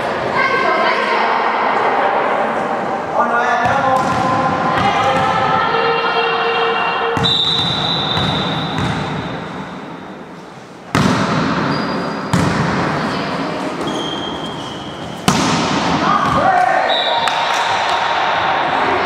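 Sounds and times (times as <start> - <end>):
players' voices: 0.0 - 8.6, 12.4 - 19.0
referee's whistle blast: 7.1 - 8.8, 16.8 - 17.3.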